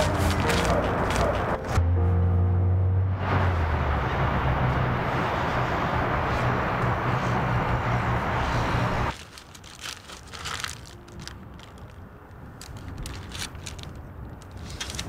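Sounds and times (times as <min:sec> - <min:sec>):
paper wrappers crinkling: 0:00.0 - 0:01.5, 0:09.1 - 0:15.0
road traffic engine hum: 0:00.0 - 0:15.0.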